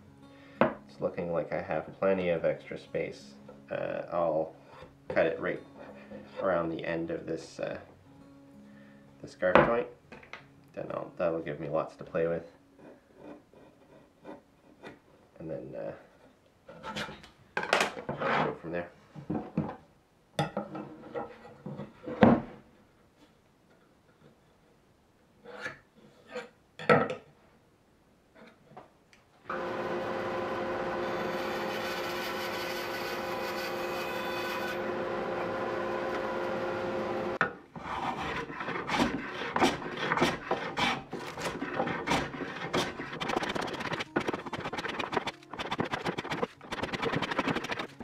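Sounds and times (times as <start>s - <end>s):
power tool running: 29.5s - 37.4s
hand plane shaving wood: 29.5s - 48.0s.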